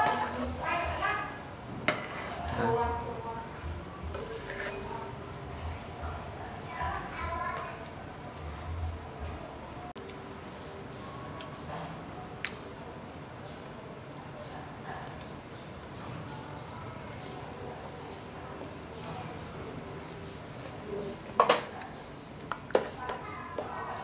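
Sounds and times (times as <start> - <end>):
soup bubbling in a pot: 9.9 - 23.7.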